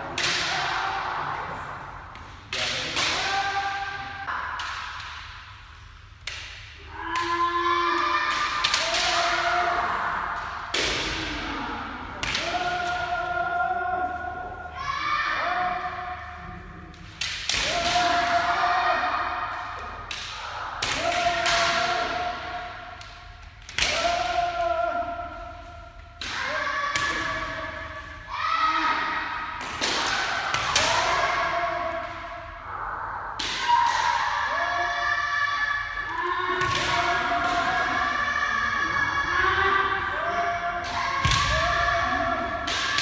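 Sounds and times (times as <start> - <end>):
people shouting: 0.0 - 1.9, 2.5 - 5.4, 6.3 - 43.0.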